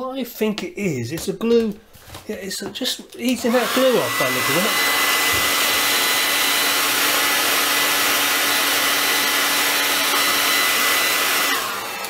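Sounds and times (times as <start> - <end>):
hair dryer running: 3.2 - 12.0.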